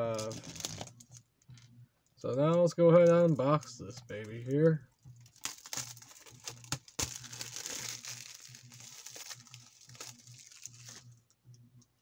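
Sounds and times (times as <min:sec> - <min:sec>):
plastic wrap crinkling and tearing: 0:00.0 - 0:01.1, 0:05.2 - 0:11.1.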